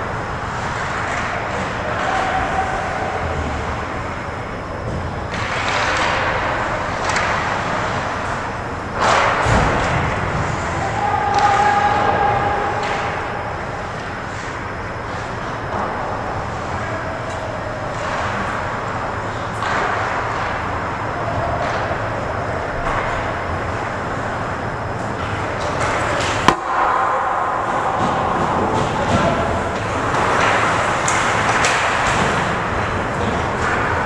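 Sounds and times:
clicks of sticks and skates: 0.5 - 3.8, 5.3 - 8.2, 9.0 - 13.3, 16.6 - 22.0, 25.1 - 34.0
distant shouts: 0.8 - 4.7, 9.1 - 24.7, 25.3 - 33.1.

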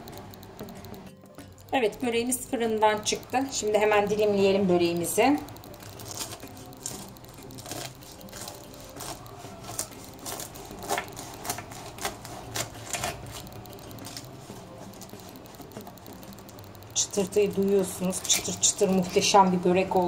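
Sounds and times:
crust crackling and crunching: 0.0 - 20.0
knife slicing crisp pastry: 5.8 - 15.8.

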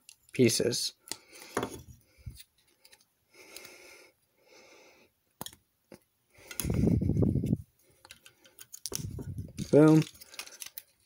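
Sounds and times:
soft breaths near microphone: 1.1 - 5.2.

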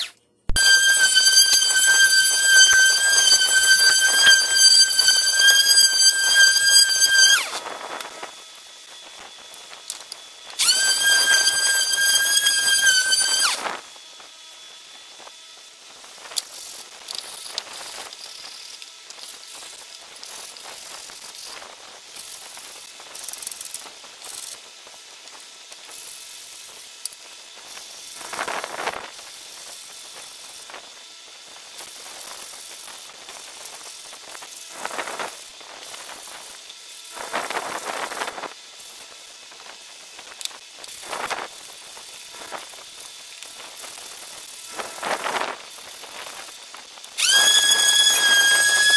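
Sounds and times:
hand sanding scrapes: 0.0 - 7.7, 10.6 - 13.7.

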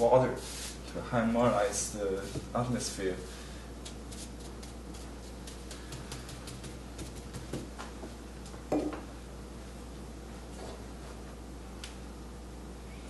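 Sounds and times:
steady low hum: 0.0 - 13.0
ink brush tapping on paper: 4.6 - 7.7.

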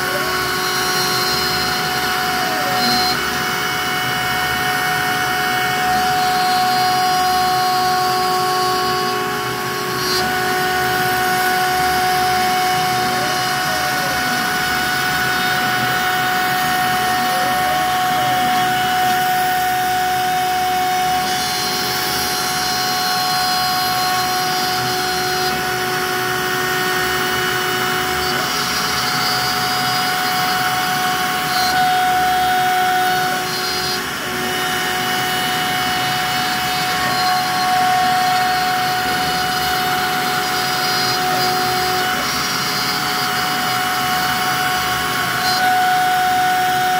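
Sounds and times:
router whining while carving wood: 0.0 - 46.9.

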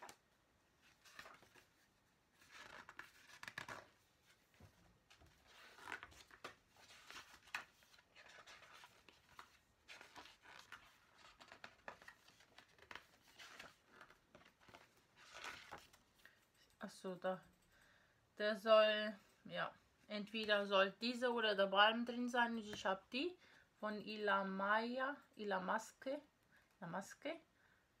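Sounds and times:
paper and cardboard crinkling: 0.8 - 16.2.

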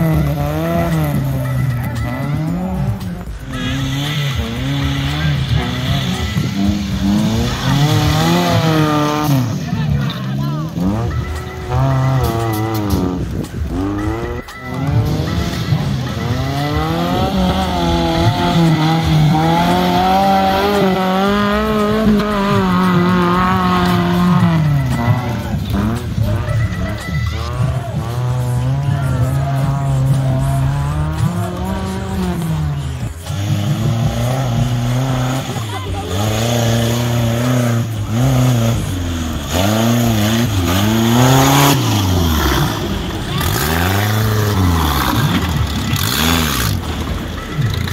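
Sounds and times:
buggy engine revving: 0.0 - 47.9.

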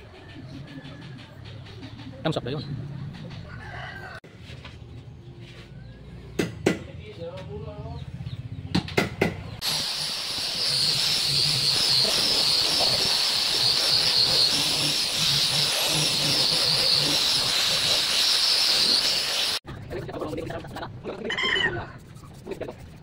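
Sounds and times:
angle grinder sanding wood: 9.6 - 19.6.

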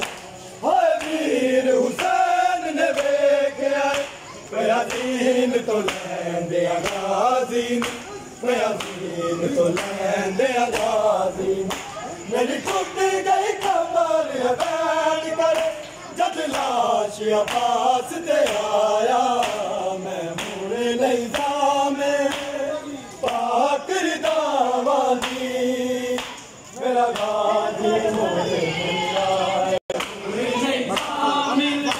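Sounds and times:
hands slapping on chests: 0.0 - 1.3, 5.8 - 6.2, 6.8 - 7.1, 7.8 - 8.0, 8.7 - 10.0, 10.7 - 11.0, 11.6 - 12.0, 15.5 - 19.8, 20.4 - 20.7, 21.3 - 22.6, 25.2 - 25.5, 26.2 - 26.5, 27.1 - 27.4, 29.9 - 30.2
men chanting in unison: 0.0 - 31.9.

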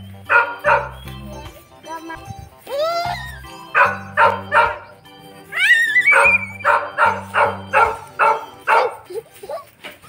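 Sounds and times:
background music with bass line: 0.0 - 9.0
dog barks: 0.3 - 1.0, 3.7 - 4.9, 6.0 - 9.1.

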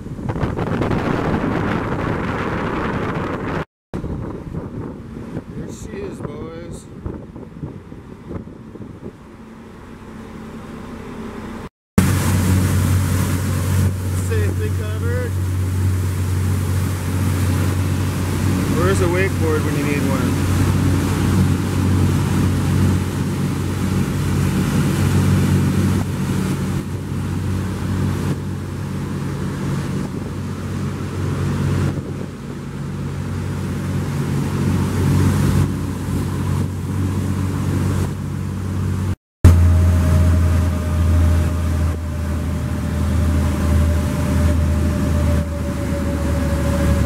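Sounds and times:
boat machinery hum: 0.0 - 47.0
faint whine dropping in pitch: 39.0 - 47.0.

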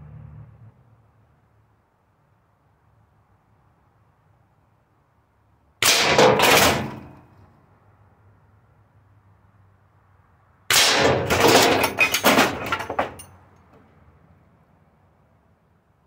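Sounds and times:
air rifle shot: 5.8 - 7.1, 10.7 - 11.4.

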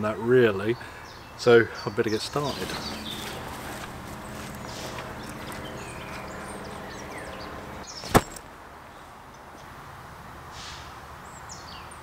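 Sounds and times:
birds chirping: 0.0 - 9.6
low steady hum: 2.2 - 8.8
sharp knock: 8.0 - 8.4.

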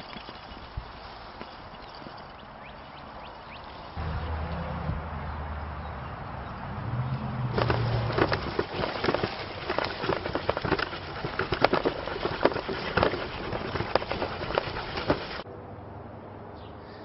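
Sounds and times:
bicycle and trailer rattling: 0.0 - 4.2, 7.5 - 15.4.

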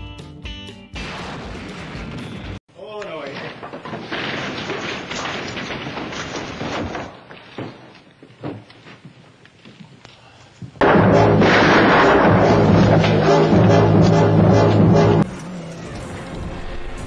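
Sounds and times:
body falling onto wooden porch: 3.3 - 9.2
loud music: 10.8 - 15.3.

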